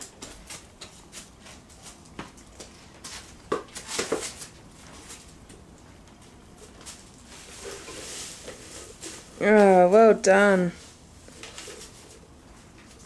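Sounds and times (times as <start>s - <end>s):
toddler footsteps: 0.0s - 5.4s.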